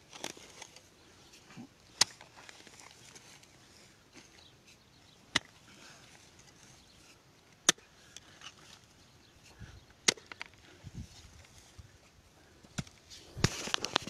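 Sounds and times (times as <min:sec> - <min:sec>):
loose dirt thudding: 0:00.0 - 0:14.0
digging tool striking stony ground: 0:02.0 - 0:02.8, 0:05.3 - 0:05.6, 0:07.6 - 0:08.2, 0:10.0 - 0:10.6, 0:12.7 - 0:14.0.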